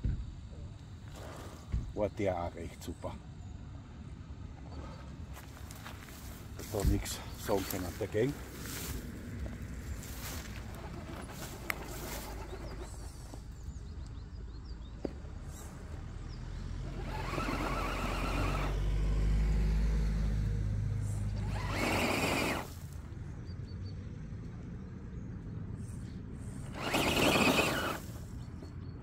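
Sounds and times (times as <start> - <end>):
tyres scrabbling in loose dirt: 4.8 - 18.8, 21.3 - 23.1, 26.6 - 28.8
rc truck electric motor running: 15.6 - 20.3, 20.9 - 23.0, 26.4 - 28.4.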